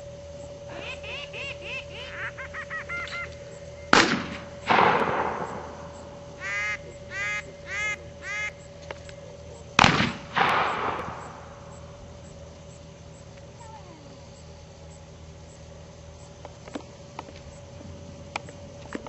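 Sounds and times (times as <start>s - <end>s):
duck call quacks: 0.7s - 3.4s, 6.4s - 8.7s
shotgun shots: 3.9s - 6.2s, 9.8s - 11.8s.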